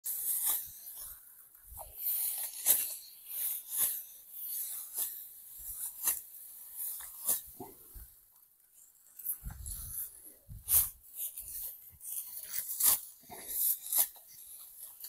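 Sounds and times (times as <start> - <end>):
sickles cutting dry rice stalks: 0.1 - 1.1, 2.0 - 5.2, 10.6 - 15.0.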